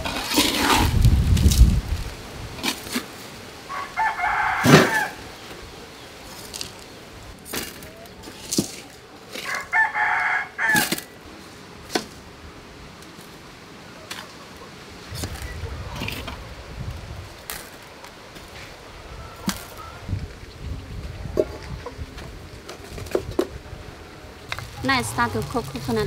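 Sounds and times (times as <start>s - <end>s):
rooster crowing: 3.7s - 5.4s, 9.4s - 11.3s.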